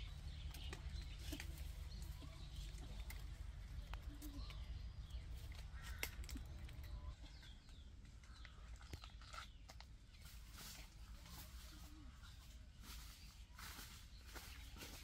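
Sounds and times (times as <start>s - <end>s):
low steady rumble: 0.0s - 8.8s
birds chirping and calling: 0.0s - 15.0s.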